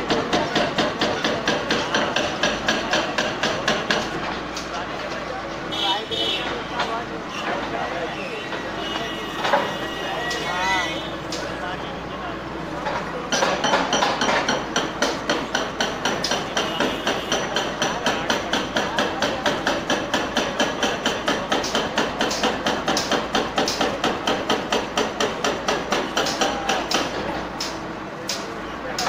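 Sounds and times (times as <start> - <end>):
hydraulic breaker hammering concrete: 0.0 - 4.8, 12.8 - 29.0.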